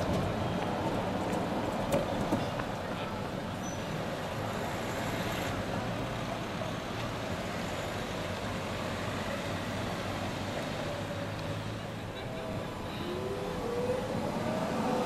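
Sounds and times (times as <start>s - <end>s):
city street traffic: 0.0s - 15.0s
car driving past: 13.1s - 15.0s.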